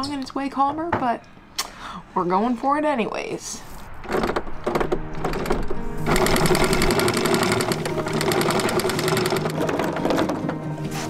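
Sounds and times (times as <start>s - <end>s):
anchor windlass motor running: 5.2s - 10.4s.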